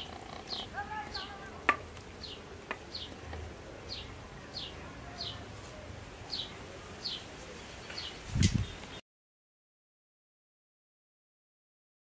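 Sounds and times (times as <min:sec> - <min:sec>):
bird chirping: 0:00.0 - 0:05.5, 0:06.1 - 0:09.0.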